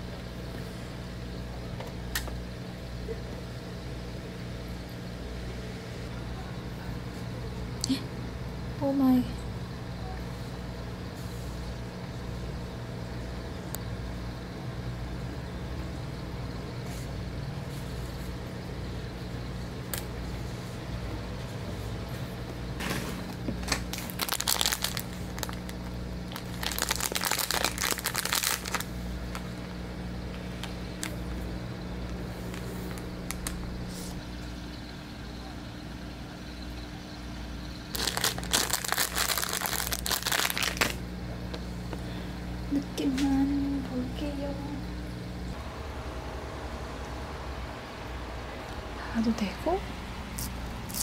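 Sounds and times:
steady low hum: 0:00.0 - 0:51.0
plastic bag crinkling: 0:23.6 - 0:29.5, 0:37.9 - 0:41.0, 0:50.4 - 0:51.0.

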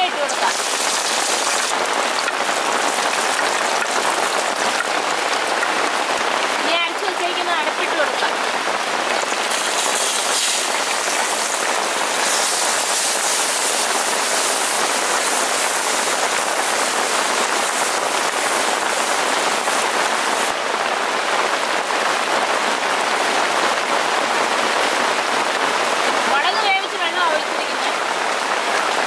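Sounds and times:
paste sizzling in hot oil: 0:00.0 - 0:04.8, 0:09.3 - 0:20.5.

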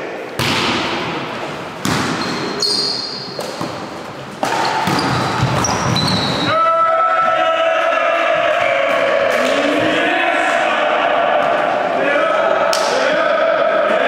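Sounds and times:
volleyball struck hard: 0:01.8 - 0:02.2
shoes squeaking on court floor: 0:01.8 - 0:06.5.

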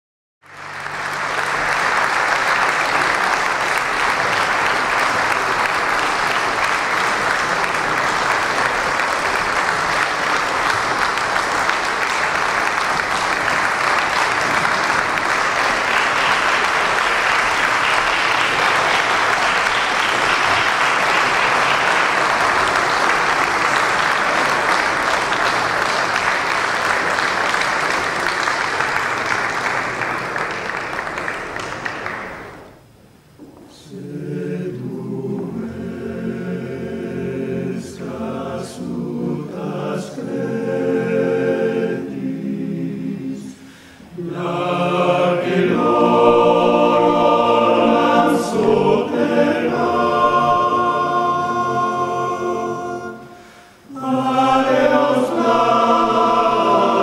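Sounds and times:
audience applauding: 0:00.4 - 0:32.8.

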